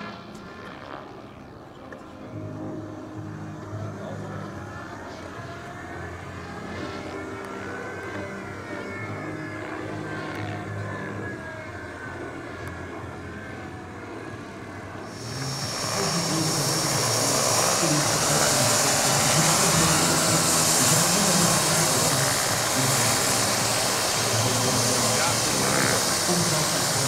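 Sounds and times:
gas turbine running: 2.2 - 27.0
turbine hiss and high whistle: 15.1 - 27.0.

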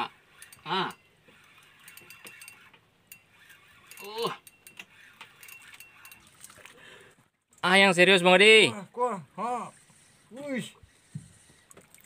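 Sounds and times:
fishing reel clicking: 0.2 - 6.6
person exclaiming: 0.7 - 1.0, 4.0 - 4.4.

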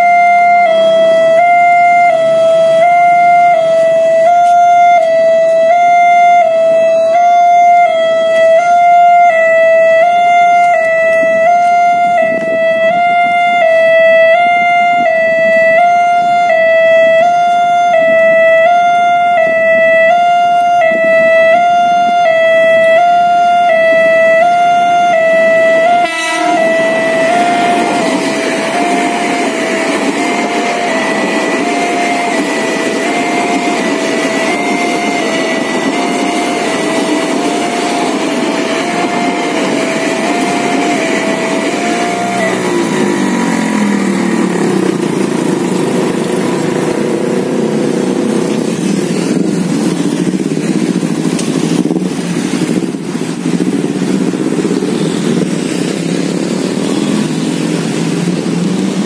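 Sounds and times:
level crossing alarm two-note tone: 0.0 - 45.2
passing train rumble: 0.0 - 59.0
cars driving: 7.8 - 59.0
motorcycles revving: 7.8 - 59.0.

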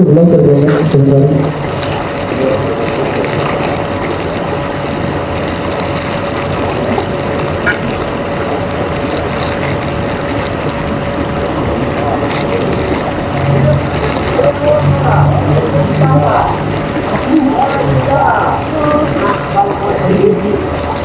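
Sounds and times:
mechanical drone: 0.0 - 21.0
plastic bag crinkling: 1.6 - 17.4.

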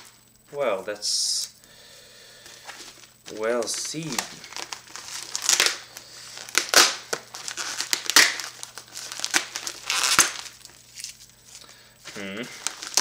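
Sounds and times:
envelope tearing and crinkling: 3.3 - 11.2, 12.5 - 13.0.

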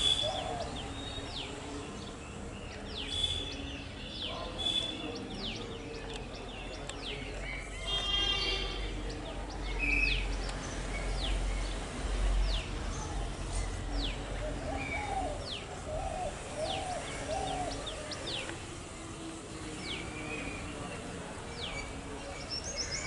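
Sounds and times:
wild birds calling: 14.5 - 18.5.

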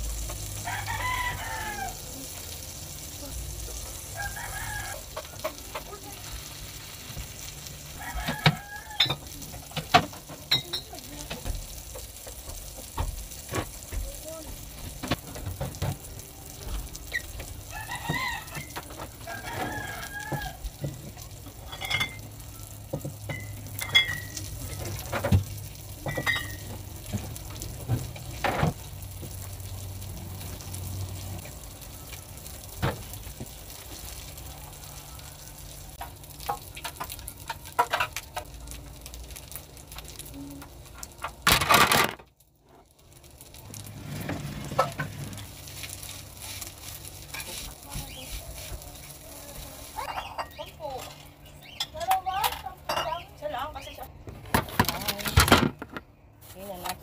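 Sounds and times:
rooster crowing: 0.6 - 2.1, 4.1 - 5.2, 7.9 - 9.3, 17.7 - 20.7, 34.4 - 35.8
bottles and plastic drawers clattering: 20.8 - 28.8, 41.2 - 42.3, 43.7 - 45.6, 54.4 - 57.0.

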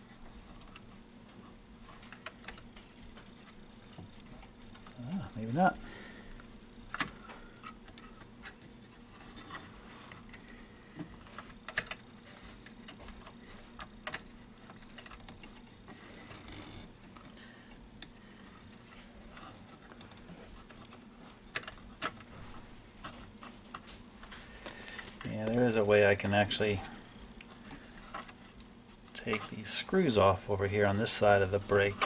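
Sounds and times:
faint steady hum: 0.0 - 32.0
fingers clicking and tapping metal parts: 11.3 - 12.0, 12.6 - 15.6, 19.6 - 22.2.

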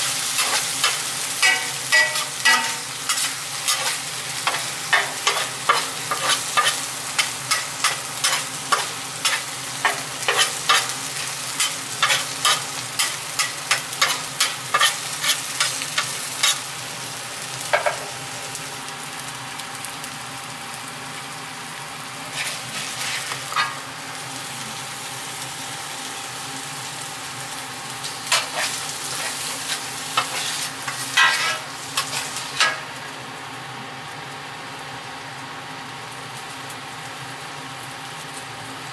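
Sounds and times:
food sizzling on griddle: 0.0 - 38.9
metal spatula scraping griddle: 0.4 - 16.6, 22.3 - 23.8, 28.3 - 32.9.

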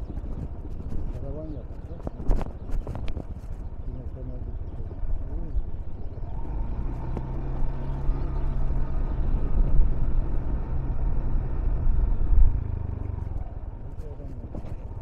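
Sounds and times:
vehicle engine humming: 0.0 - 15.0.

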